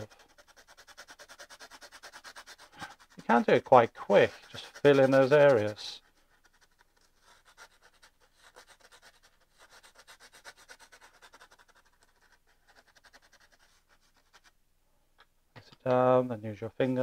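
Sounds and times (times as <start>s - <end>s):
pencil scratching on canvas: 0.0s - 14.5s.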